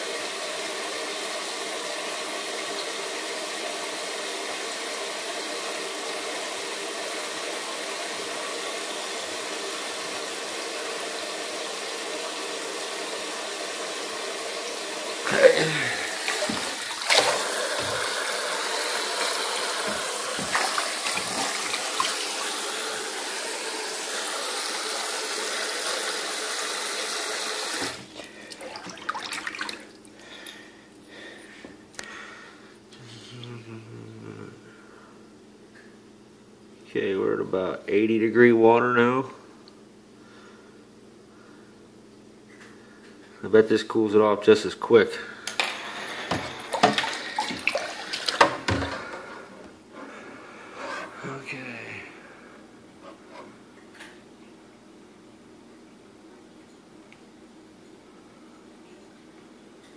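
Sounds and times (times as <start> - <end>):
tap water running into sink: 0.0 - 30.5, 46.1 - 49.3
small water splashes: 16.3 - 18.0, 19.9 - 22.2, 28.5 - 30.4, 46.8 - 48.5.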